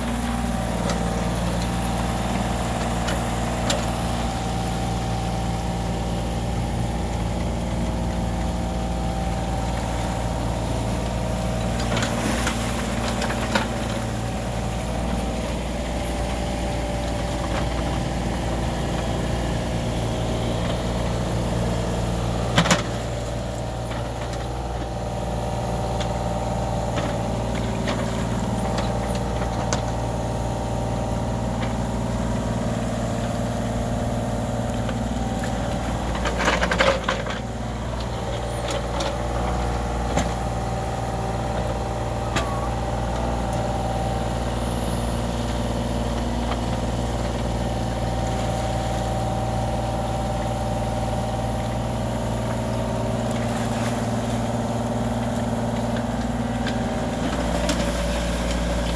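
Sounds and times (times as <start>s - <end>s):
diesel engine running: 0.0s - 58.9s.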